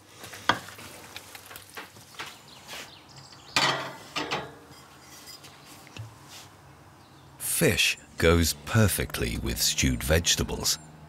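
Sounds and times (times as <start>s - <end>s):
scraping on griddle: 3.6s - 5.7s.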